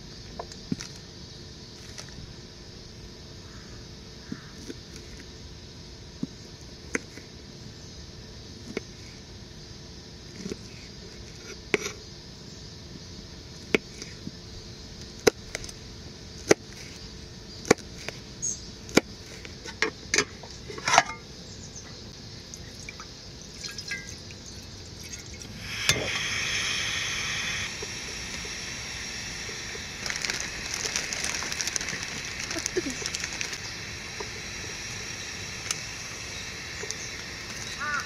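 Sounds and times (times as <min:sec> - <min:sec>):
water pouring: 0:22.6 - 0:26.1.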